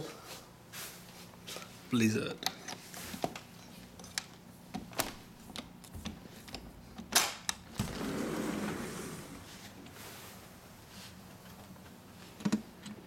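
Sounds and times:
sliding door scraping rumble: 0:07.8 - 0:09.8.

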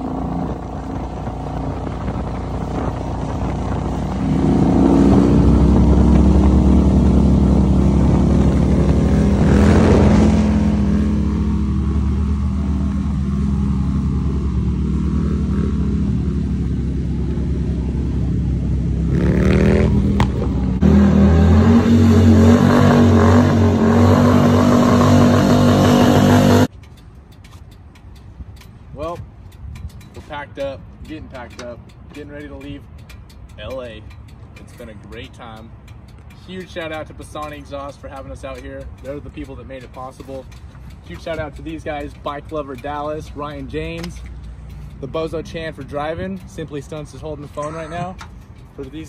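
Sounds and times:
engine drone: 0:00.0 - 0:26.7
vehicle engine running: 0:00.0 - 0:27.0.

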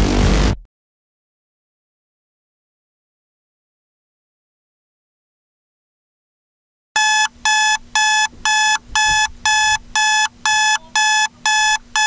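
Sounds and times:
alarm clock beeping: 0:07.0 - 0:12.0.

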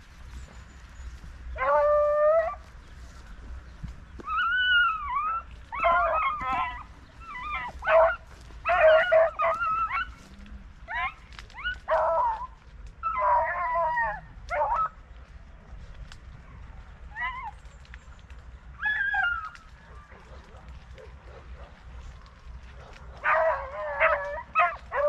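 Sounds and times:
hounds baying: 0:00.8 - 0:03.0, 0:03.8 - 0:15.3, 0:18.7 - 0:25.0.

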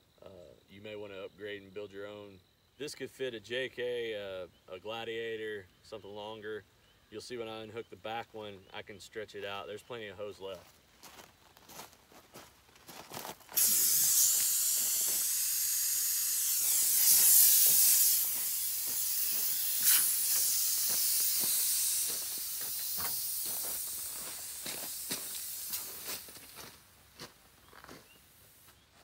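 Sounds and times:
footsteps on gravel: 0:10.5 - 0:15.4, 0:16.7 - 0:29.0
compressed air hissing from hose: 0:13.5 - 0:26.7.

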